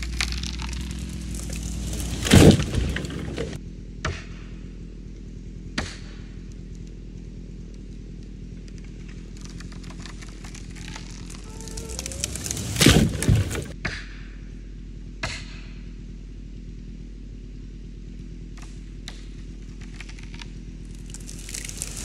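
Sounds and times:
branches clattering: 0:00.0 - 0:03.6, 0:08.6 - 0:13.8, 0:19.7 - 0:22.0
tree crashing to the ground: 0:00.0 - 0:03.6, 0:08.7 - 0:13.8, 0:20.9 - 0:22.0
wood snapping: 0:00.0 - 0:04.2, 0:07.7 - 0:14.0, 0:18.6 - 0:22.0
chainsaw idling: 0:06.4 - 0:13.8, 0:18.4 - 0:22.0.

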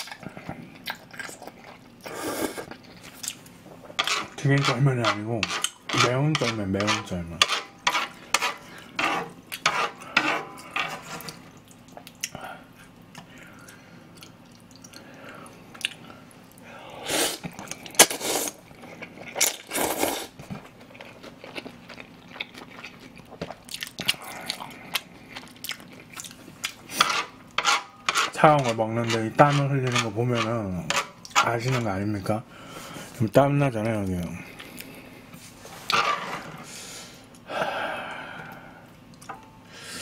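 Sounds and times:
chewing: 0:00.0 - 0:04.2, 0:13.0 - 0:16.6, 0:18.7 - 0:26.9
slurping noodles: 0:19.7 - 0:20.4.

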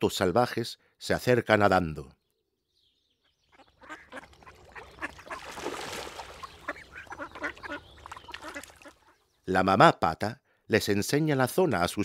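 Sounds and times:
ducks quacking: 0:03.5 - 0:09.2.

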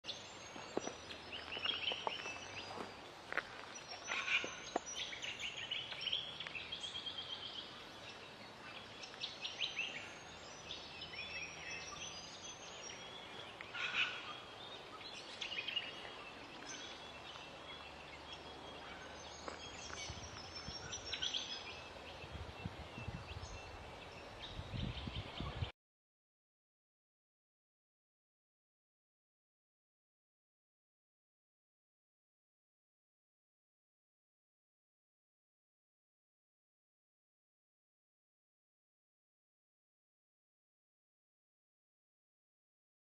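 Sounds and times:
songbirds chirping and trilling: 0:00.0 - 0:25.7
steady outdoor hiss: 0:00.1 - 0:25.7.

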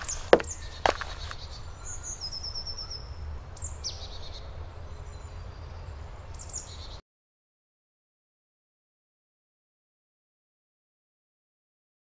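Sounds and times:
small songbirds calling: 0:00.0 - 0:07.0.

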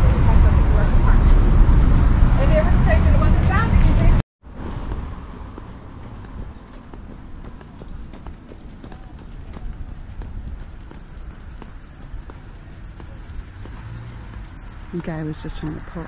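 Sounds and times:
low rumble: 0:00.0 - 0:14.9
high-pitched insect trill: 0:00.2 - 0:16.0.

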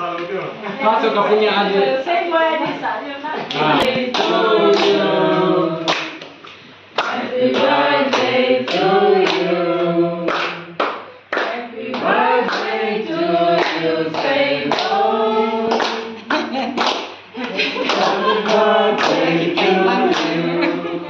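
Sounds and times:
group of people singing: 0:03.4 - 0:06.3, 0:07.0 - 0:16.6, 0:17.4 - 0:21.0.

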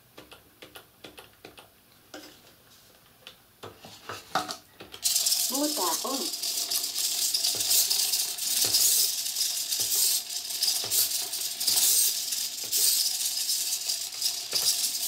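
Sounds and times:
servo motors whirring and rattling: 0:07.3 - 0:13.2.

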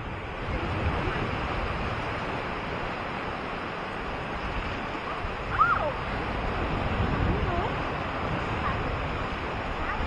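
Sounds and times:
waves washing onto beach: 0:00.0 - 0:10.0.

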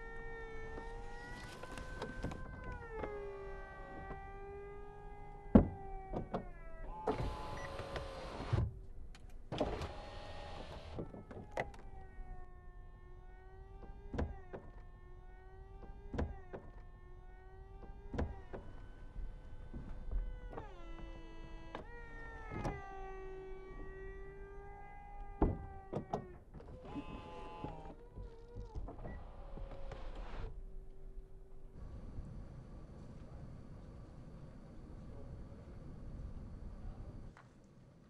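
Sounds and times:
roof motor whine: 0:00.0 - 0:08.6.

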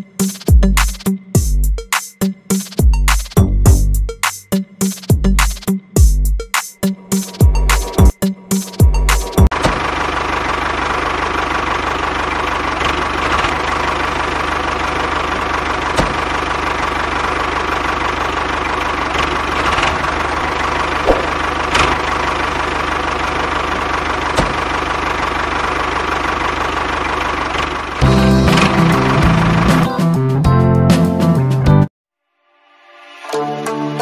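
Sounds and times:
tractor diesel engine knocking: 0:09.4 - 0:29.8.

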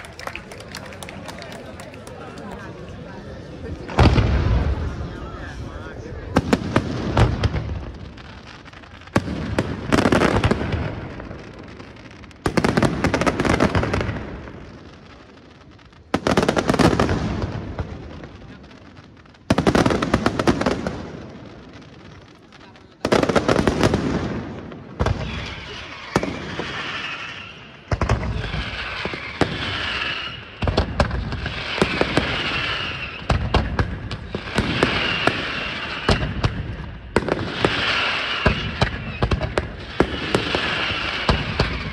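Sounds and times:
firework crackling: 0:00.0 - 0:41.9
firework shells booming: 0:03.8 - 0:05.1, 0:06.3 - 0:15.0, 0:23.1 - 0:41.9
shrill wavering firework whistle: 0:25.1 - 0:30.8, 0:31.4 - 0:33.6, 0:34.3 - 0:36.5, 0:37.5 - 0:41.9.

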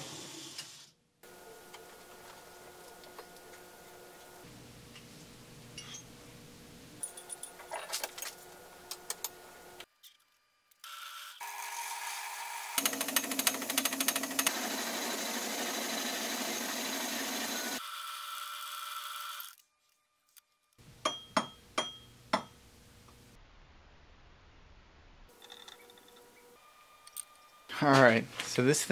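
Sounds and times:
lathe motor humming: 0:11.4 - 0:17.8.

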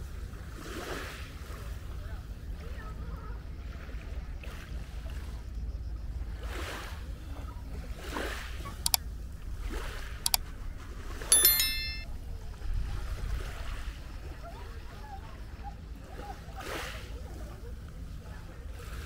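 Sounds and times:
short metallic ring: 0:11.3 - 0:12.1.

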